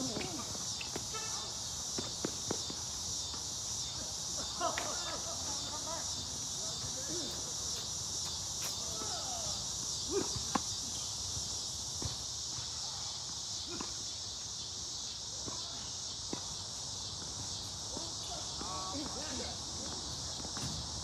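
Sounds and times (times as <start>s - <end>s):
insects chorus: 0.0s - 21.0s
tennis balls struck by rackets: 10.2s - 10.8s.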